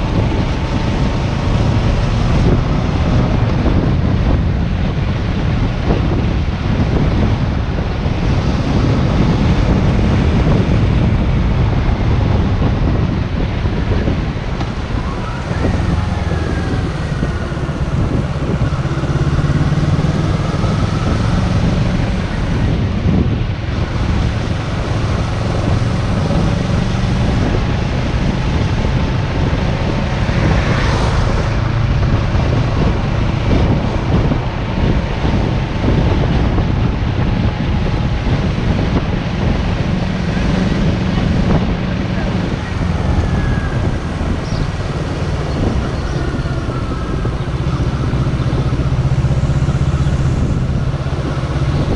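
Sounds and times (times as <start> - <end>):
motorcycle engine running: 0.0 - 51.9
wind on microphone: 0.0 - 51.9.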